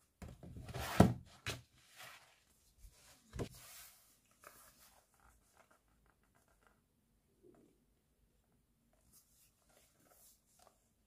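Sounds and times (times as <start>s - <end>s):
paper rustling and sliding: 0.7s - 5.2s.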